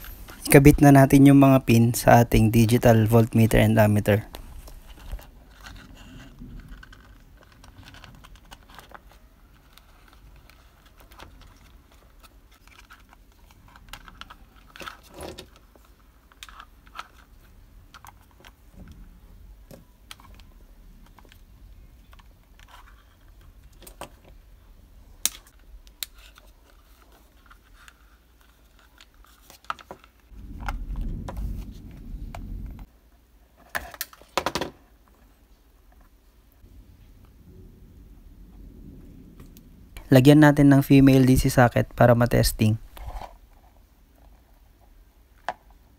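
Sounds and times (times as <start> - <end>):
plastic parts clicking and tapping: 4.3 - 19.0, 22.0 - 24.4, 33.6 - 34.8
low rumble: 30.3 - 32.9, 36.6 - 43.1.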